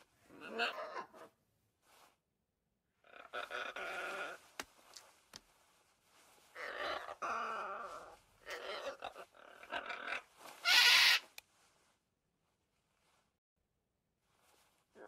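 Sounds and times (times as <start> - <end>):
macaw squawks: 8.6 - 11.3.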